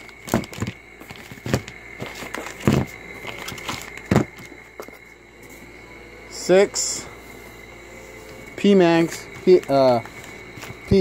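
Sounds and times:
plastic bags crinkling: 0.0 - 5.0.

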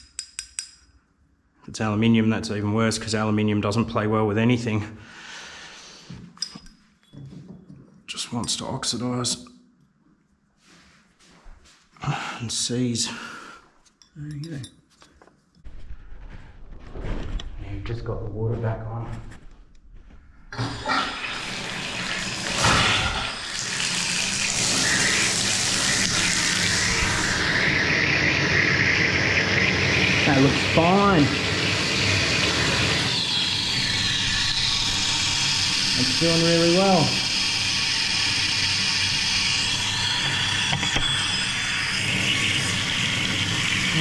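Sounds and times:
water running into a bathtub: 20.5 - 44.0.

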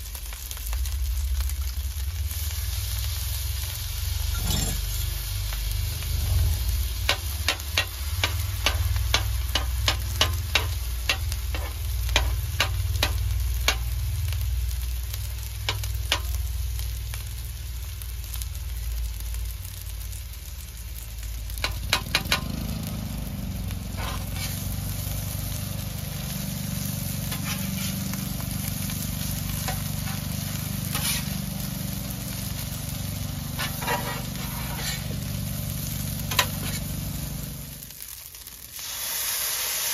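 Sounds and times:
food sizzling on a griddle: 0.0 - 39.9.

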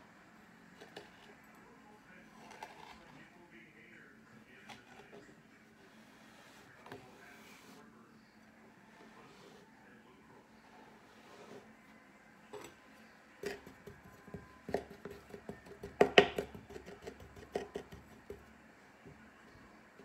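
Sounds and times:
hands tapping kinetic sand on wood: 13.4 - 18.4.

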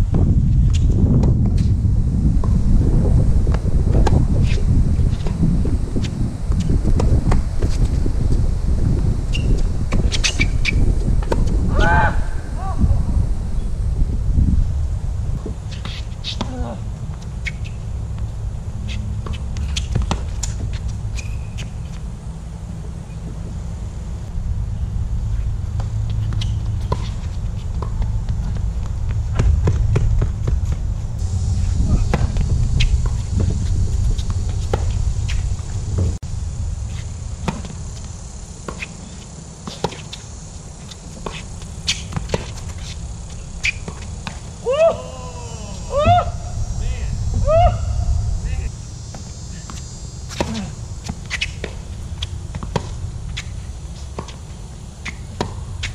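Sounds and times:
steady low rumble: 0.0 - 55.9
ball bouncing: 25.7 - 30.8
short pitched cry: 44.6 - 48.4.

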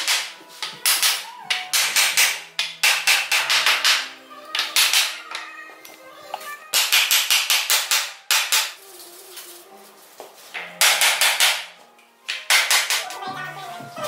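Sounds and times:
hammer knocking wooden block: 0.0 - 5.2, 6.8 - 8.7, 10.8 - 11.7, 12.3 - 13.2.

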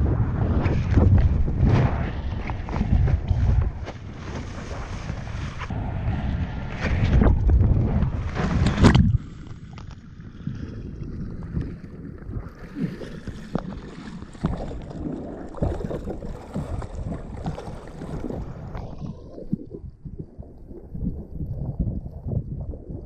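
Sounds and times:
wind buffeting microphone: 0.0 - 9.5
water sloshing and splashing: 6.8 - 23.0.

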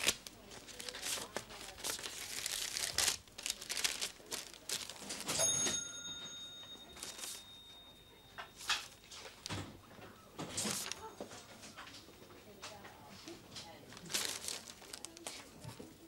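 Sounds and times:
paper rustling and crinkling: 0.0 - 5.8, 6.9 - 7.5, 8.6 - 12.0, 12.6 - 16.0
faint high ringing tone: 5.4 - 9.2.

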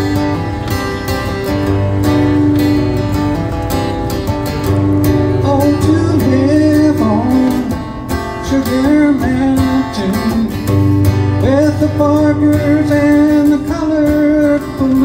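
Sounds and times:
strummed acoustic guitar: 0.0 - 15.0
man singing folk melody: 5.3 - 15.0.

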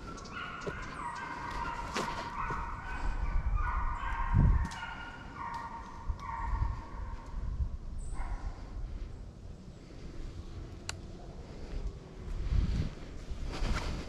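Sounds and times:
hounds baying: 0.0 - 7.4.

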